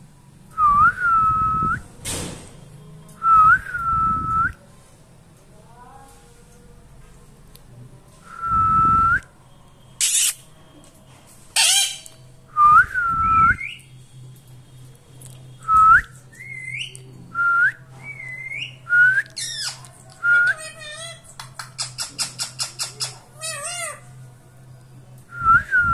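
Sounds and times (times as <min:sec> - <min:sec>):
parakeet screeching: 0:10.0 - 0:10.4, 0:11.6 - 0:12.1, 0:20.6 - 0:24.1.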